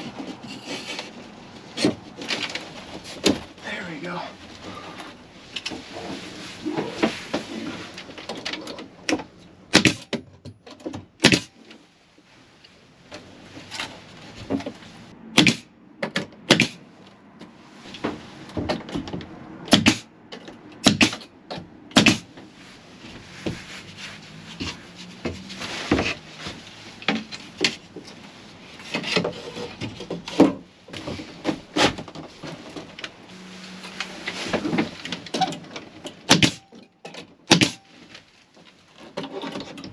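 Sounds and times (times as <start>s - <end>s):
rubbing and handling noise: 0.0s - 8.7s, 22.3s - 36.1s.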